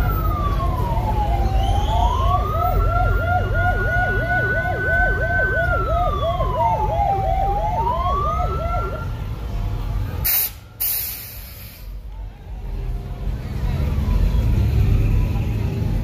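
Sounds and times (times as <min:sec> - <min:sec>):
police siren yelping: 0:00.0 - 0:09.2
police siren wailing: 0:00.0 - 0:11.0
vehicle engines rumbling: 0:00.0 - 0:16.0.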